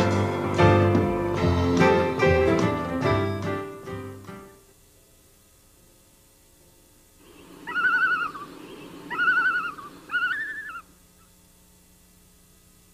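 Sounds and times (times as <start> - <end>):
soft hiss: 0.0 - 12.9
loon tremolo call: 7.2 - 11.4.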